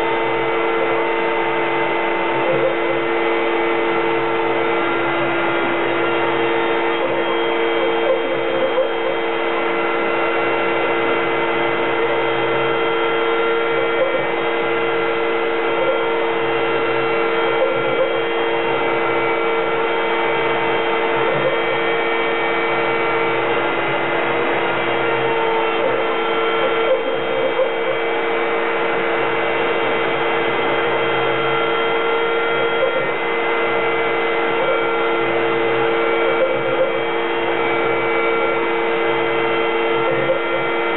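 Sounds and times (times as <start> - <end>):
low machine hum: 0.0 - 40.9
router spindle whine: 0.0 - 40.9.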